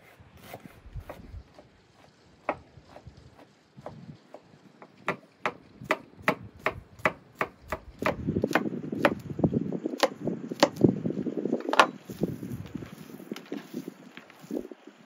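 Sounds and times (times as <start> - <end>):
knife chopping on wooden board: 3.8 - 9.2, 10.0 - 10.8, 11.6 - 12.0.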